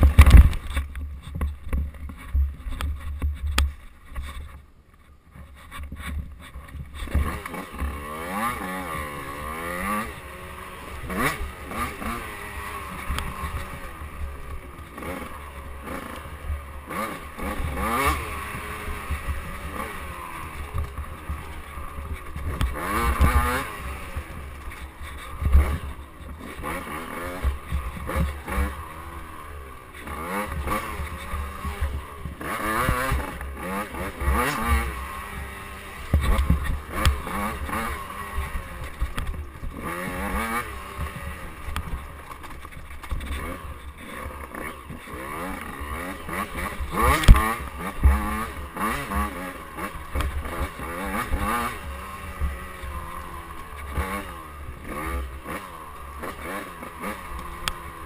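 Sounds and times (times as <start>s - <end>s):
bike knocking on bumps: 0.0s - 4.5s
dirt bike engine revving: 0.0s - 4.5s, 5.5s - 58.0s.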